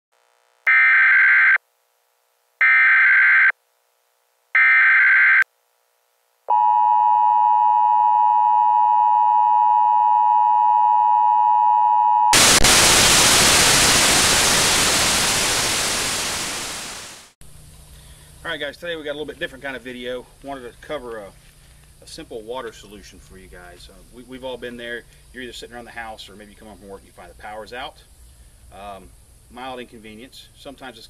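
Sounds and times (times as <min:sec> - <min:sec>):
white-noise static: 0:00.1 - 0:00.7, 0:12.4 - 0:31.0
two-tone emergency attention signal: 0:06.5 - 0:12.4.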